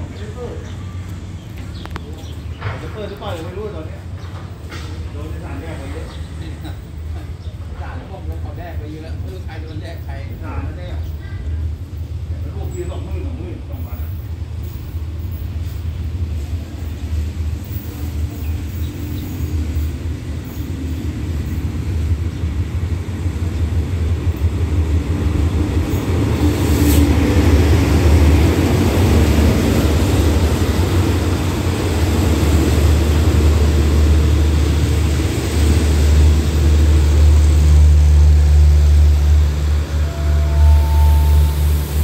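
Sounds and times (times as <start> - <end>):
train rolling on rails: 0.0 - 42.0
locomotive engine: 25.0 - 42.0.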